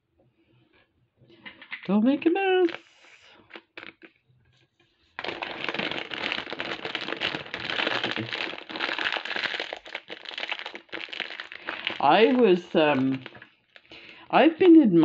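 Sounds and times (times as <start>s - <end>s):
plastic bag of beads crinkling: 2.5s - 2.9s, 5.2s - 14.6s.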